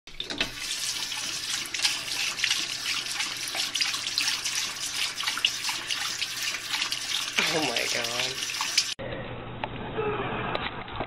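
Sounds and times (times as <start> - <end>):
water running into sink: 0.1 - 9.0.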